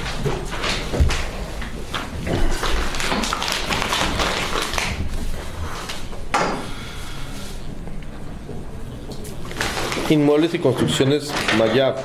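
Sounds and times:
papers rustling: 0:00.0 - 0:06.2, 0:09.1 - 0:12.0.

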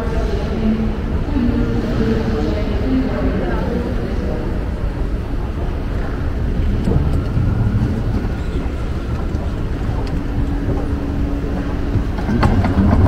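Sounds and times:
escalator rumbling: 0:00.0 - 0:13.0
faint held hum: 0:00.0 - 0:13.0
faint clicks: 0:06.6 - 0:12.5.

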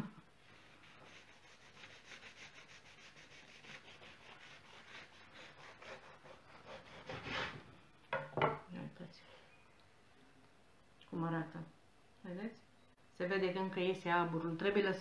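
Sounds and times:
knife sawing through bread: 0:00.8 - 0:07.6.

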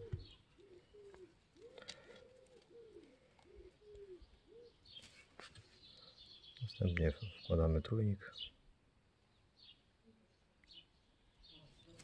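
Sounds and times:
faint bird calls: 0:00.0 - 0:07.4.

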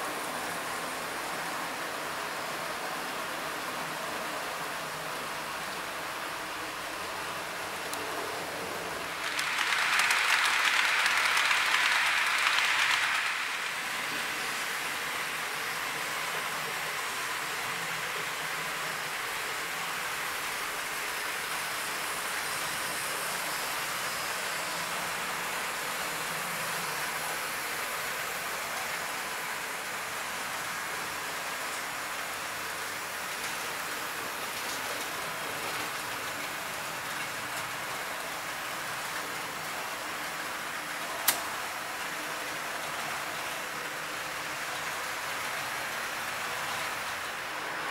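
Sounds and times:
model train wheels rattling on rails: 0:07.8 - 0:17.4, 0:19.6 - 0:47.9.

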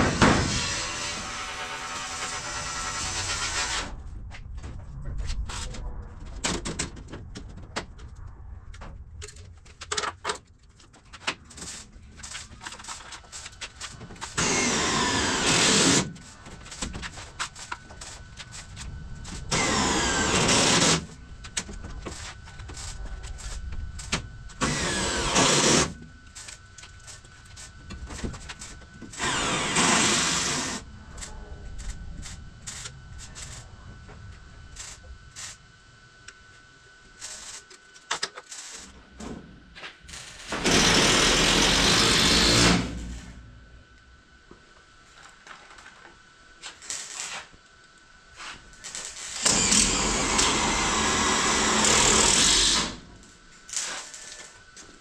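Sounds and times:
cordless drill driving screws: 0:24.6 - 0:25.9, 0:29.2 - 0:30.8, 0:40.5 - 0:43.0, 0:49.4 - 0:53.0.

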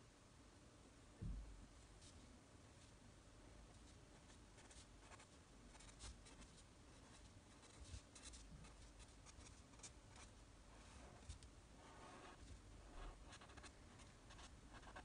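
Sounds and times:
pen scratching on paper: 0:04.6 - 0:15.0.

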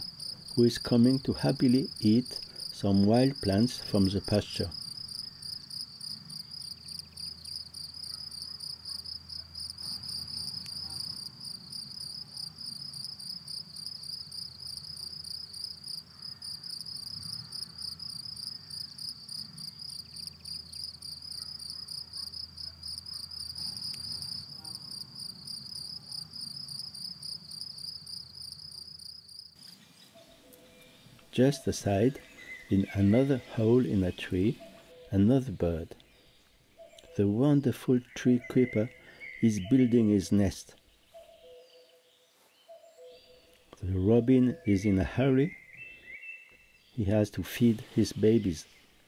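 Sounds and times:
cricket chirping: 0:00.0 - 0:31.0.

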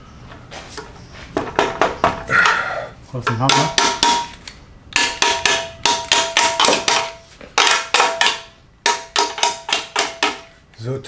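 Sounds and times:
hammer striking metal: 0:03.3 - 0:04.4, 0:05.0 - 0:10.5.

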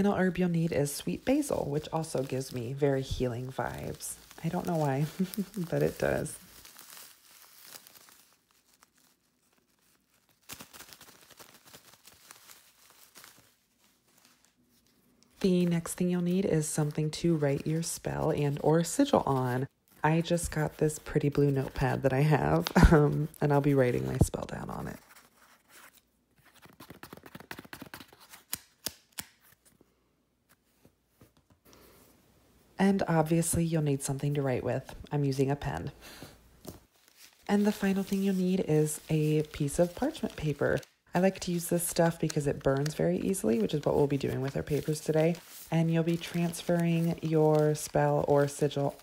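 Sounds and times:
plastic bag crinkling: 0:00.0 - 0:25.9, 0:33.0 - 0:49.0.

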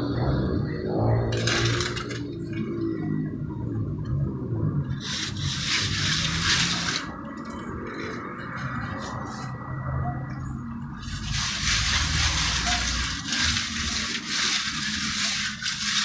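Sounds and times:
float scraping wet cement: 0:01.2 - 0:02.8, 0:04.9 - 0:09.6, 0:11.0 - 0:16.0.

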